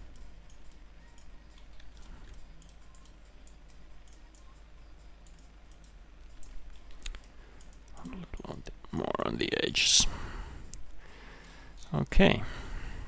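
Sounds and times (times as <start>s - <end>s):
computer mouse clicking: 0.0s - 8.6s.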